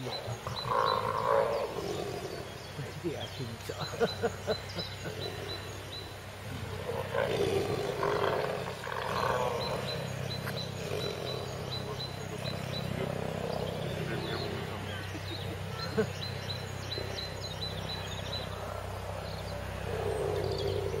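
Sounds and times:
tigers growling: 0.0s - 21.0s.

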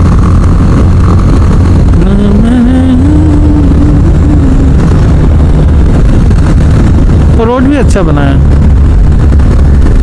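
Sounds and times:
motorcycle engine running: 0.0s - 10.0s
wind rumble on microphone: 0.0s - 10.0s.

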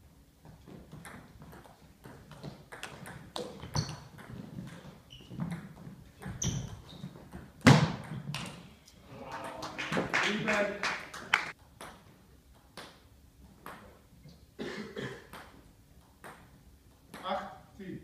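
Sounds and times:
shoes squeaking on floor: 3.4s - 8.3s.

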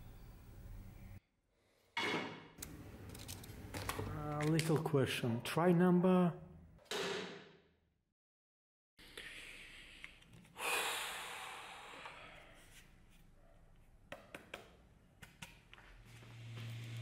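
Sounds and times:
heavy exhale: 10.6s - 12.7s.

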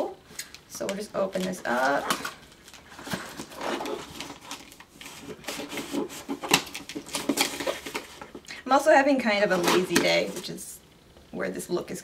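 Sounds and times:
cardboard scraping and rustling: 1.4s - 8.4s.

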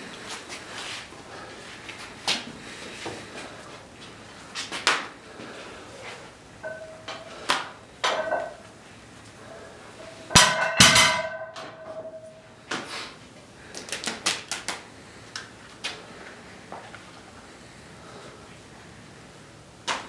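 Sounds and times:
metallic clanks with ringing: 6.6s - 8.7s, 9.4s - 12.5s.

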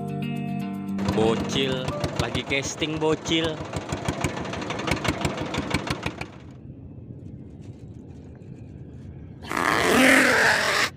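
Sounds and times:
rapid clicking: 1.0s - 6.5s
boat engine running: 1.0s - 6.6s.

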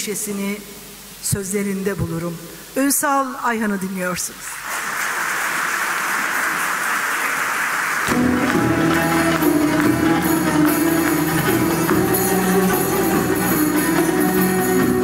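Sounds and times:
audience applause: 4.6s - 15.0s
light percussion beat: 8.1s - 15.0s.

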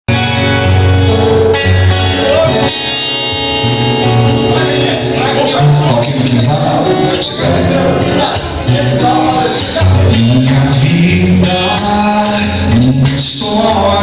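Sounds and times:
instrumental accompaniment: 0.1s - 14.0s
man singing long held notes: 5.2s - 14.0s.

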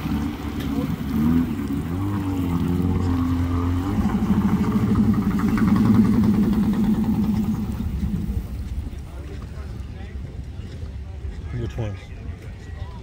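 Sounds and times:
engine running: 0.0s - 9.9s.

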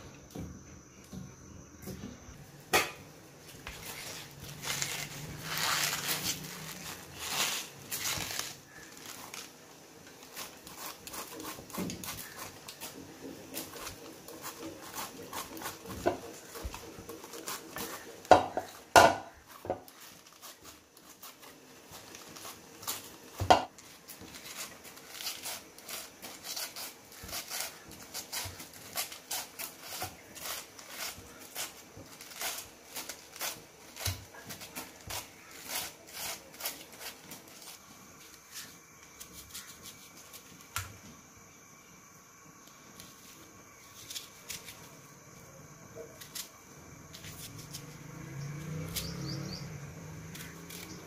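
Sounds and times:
peeler scraping cabbage: 3.6s - 40.6s, 47.1s - 51.0s.

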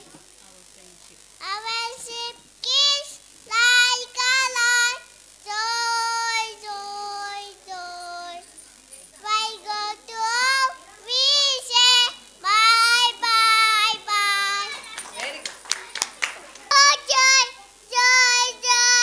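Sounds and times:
child singing solo: 1.4s - 8.4s, 9.3s - 15.0s, 16.7s - 19.0s.

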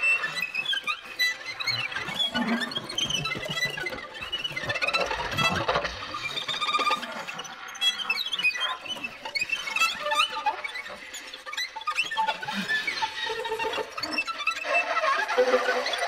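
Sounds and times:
violin squeaks and scratches: 0.0s - 16.0s.

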